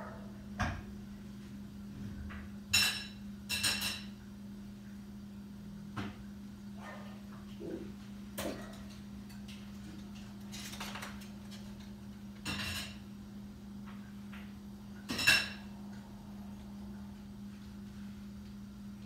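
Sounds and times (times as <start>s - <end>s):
steady low hum: 0.0s - 19.0s
dishes and cutlery clinking: 2.7s - 4.2s, 8.4s - 13.1s, 15.0s - 15.7s.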